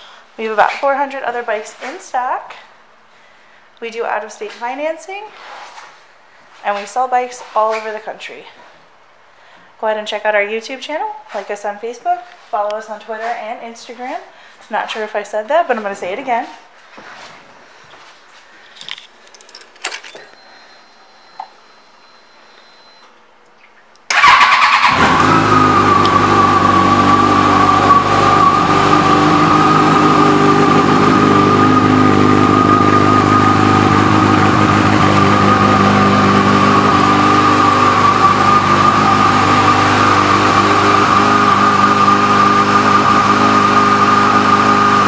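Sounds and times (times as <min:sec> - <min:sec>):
motorcycle engine starting and idling: 0:24.0 - 0:45.0.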